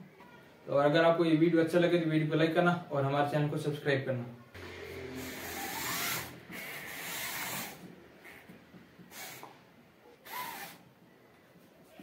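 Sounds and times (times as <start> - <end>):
small electric gear motors whining: 4.6 - 7.8.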